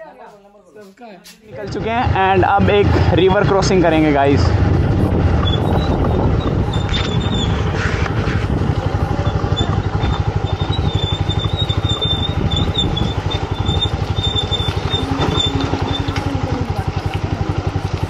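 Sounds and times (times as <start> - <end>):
motorcycle engine running: 1.5 - 18.0.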